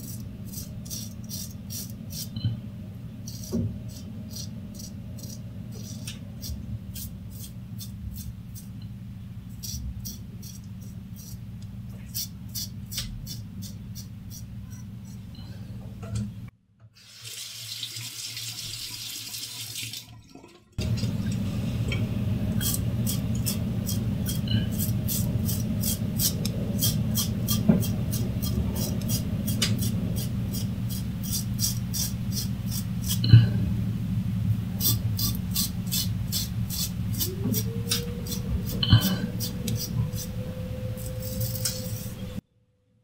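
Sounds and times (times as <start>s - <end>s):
water running in sink: 17.0s - 33.4s
razor scraping stubble: 22.6s - 33.3s, 34.8s - 40.4s, 41.0s - 42.2s.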